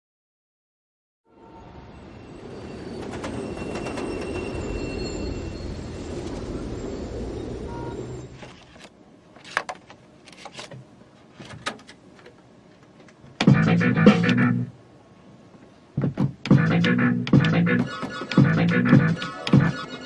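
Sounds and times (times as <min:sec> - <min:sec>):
freight train rumbling past: 0:01.4 - 0:08.4
wheels clicking on rails: 0:02.5 - 0:07.3.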